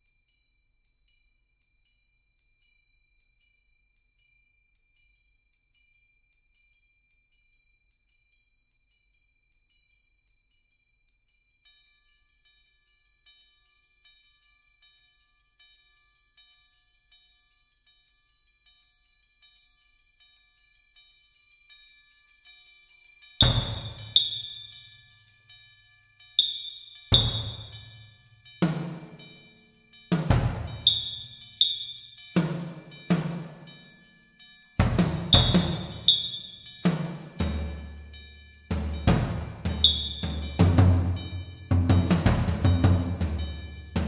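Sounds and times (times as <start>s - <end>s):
small metal percussion strikes: 22.8s - 44.0s
ringing tones: 23.4s - 24.9s, 26.4s - 34.2s, 34.8s - 44.0s
low drum stroke with crash: 27.2s - 27.8s, 30.2s - 31.8s.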